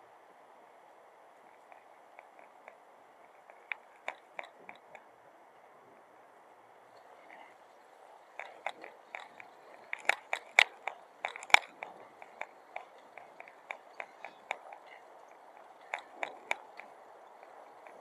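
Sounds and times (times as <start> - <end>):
faint steady hum: 0.0 - 18.0
sharp rapid clicks: 8.3 - 18.0.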